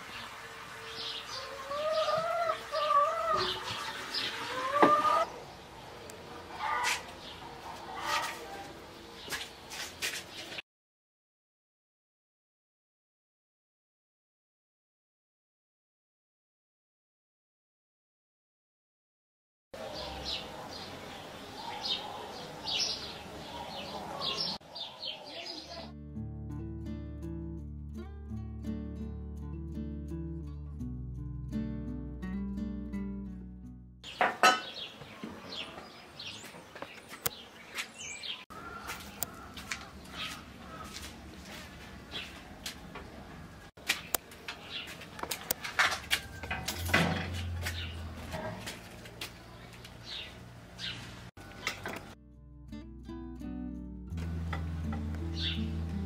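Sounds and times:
small birds chirping: 19.8 - 25.9, 34.0 - 41.2, 41.9 - 45.6, 47.4 - 48.2, 49.0 - 51.3, 55.2 - 56.0.

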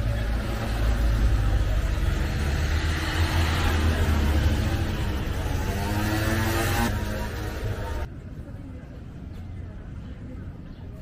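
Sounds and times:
vehicle engine rumbling: 0.0 - 8.2.

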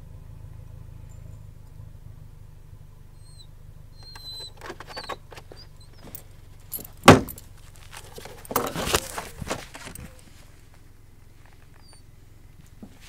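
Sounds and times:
vehicle engine idling: 0.0 - 13.0
thin high squeaks: 3.9 - 10.5, 11.4 - 12.1
rustles and clicks: 4.0 - 13.0
loud thump: 7.0 - 7.4.

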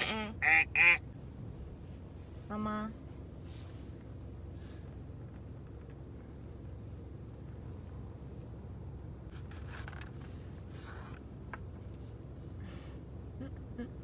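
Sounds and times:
car interior hum: 0.0 - 14.0
scratching and rustling: 9.3 - 12.1.

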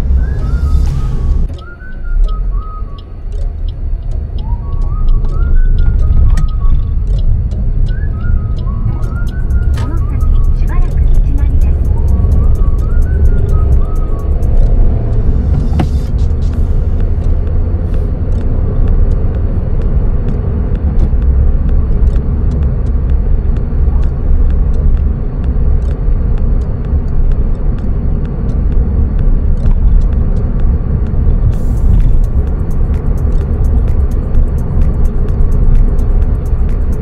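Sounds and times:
car road and engine rumble: 0.0 - 37.0.

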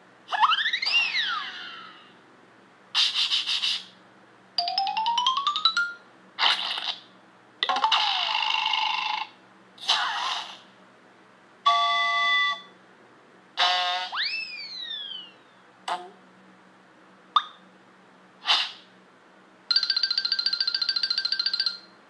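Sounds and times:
swooping whistle: 13.6 - 15.6.

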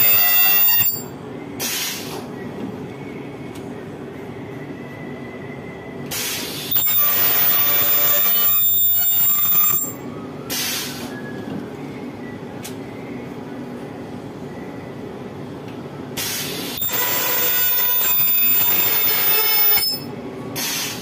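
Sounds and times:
ultrasonic welder screeching: 0.0 - 1.1, 6.2 - 10.0, 16.2 - 21.0
steady machine hum: 0.0 - 1.6, 6.7 - 10.2, 16.7 - 20.6.

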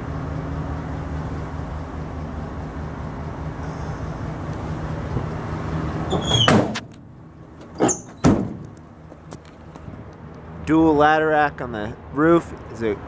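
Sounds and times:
steady low hum: 0.0 - 6.1
van door slamming: 6.0 - 6.9, 7.6 - 8.8
van door click: 7.6 - 8.9.

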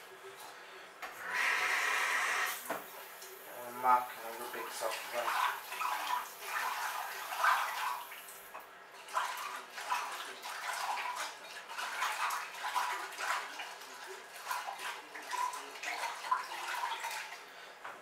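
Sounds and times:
water splashing and swishing: 4.0 - 17.5.

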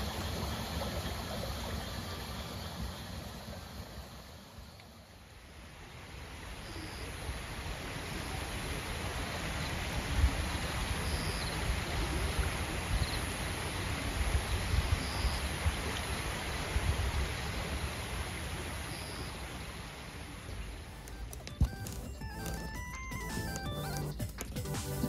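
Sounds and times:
stream water running: 0.0 - 25.0.

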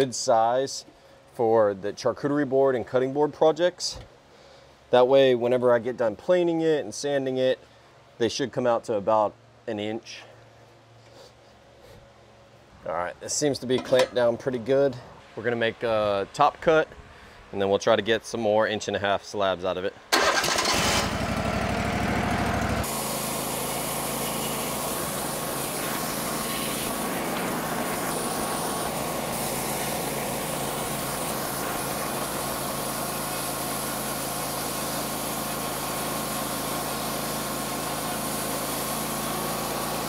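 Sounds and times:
sawmill gas engine running: 20.1 - 40.0.

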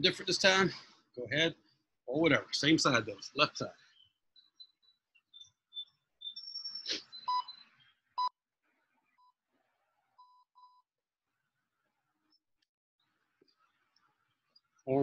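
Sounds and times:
short electronic beeps: 6.3 - 7.6.

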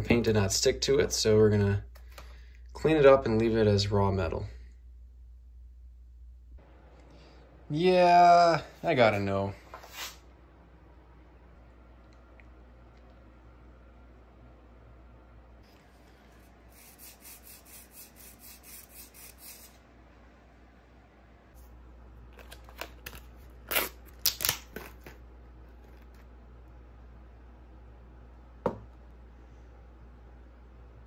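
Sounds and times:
light scratching strokes: 15.7 - 19.8.

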